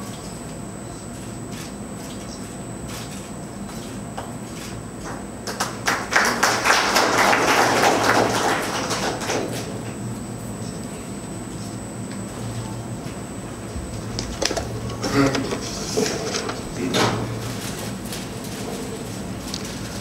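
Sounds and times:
audience applauding: 5.4 - 9.7.

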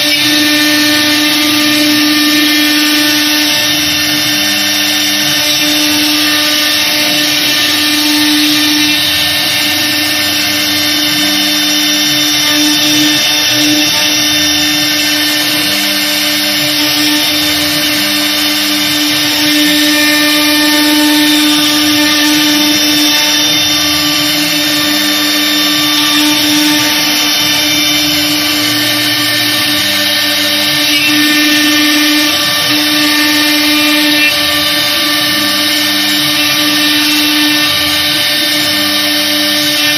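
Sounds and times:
router bit cutting wood: 0.0 - 39.9
router spindle whine and hum: 0.0 - 39.9.

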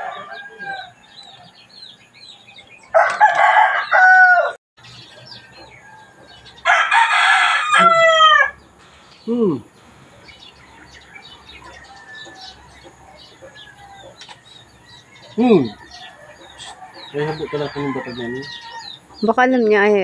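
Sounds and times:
rooster crowing: 0.0 - 1.6, 2.9 - 4.6, 5.3 - 8.6, 10.7 - 19.2
small birds chirping: 0.0 - 4.1, 4.8 - 20.0.

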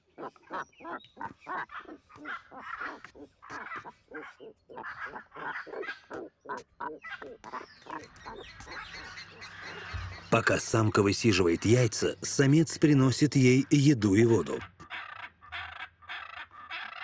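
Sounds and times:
macaw giving short calls: 0.2 - 10.3, 14.6 - 17.0.

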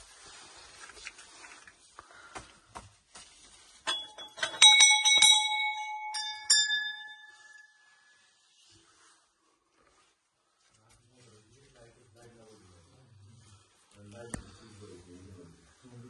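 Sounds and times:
faint shuffling and knocks: 0.0 - 16.0
brass bells ringing: 3.9 - 8.2
higher-pitched bell ringing: 3.9 - 8.3.

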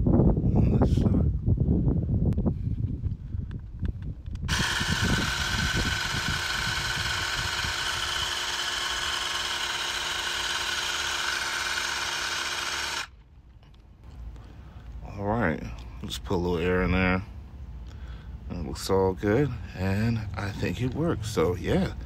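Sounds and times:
electric air compressor whining: 4.5 - 13.1.

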